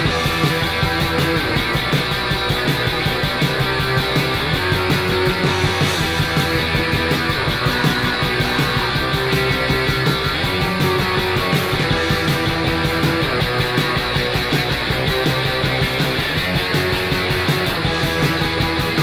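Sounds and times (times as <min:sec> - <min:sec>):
loud noise rock band: 0:00.0 - 0:19.0.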